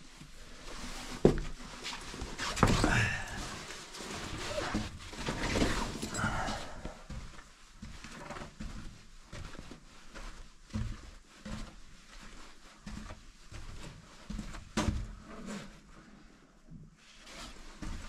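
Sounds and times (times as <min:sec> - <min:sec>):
soft knocks and scuffs: 0:00.2 - 0:05.9, 0:06.9 - 0:15.6.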